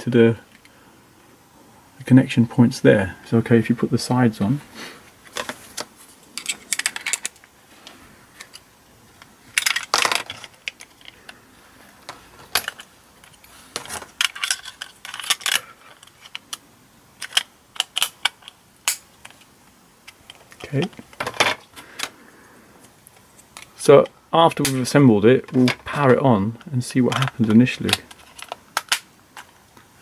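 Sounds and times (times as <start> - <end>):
plastic parts clicking together: 5.3 - 7.5, 9.2 - 11.4, 12.0 - 16.6, 17.2 - 22.2, 25.5 - 29.6.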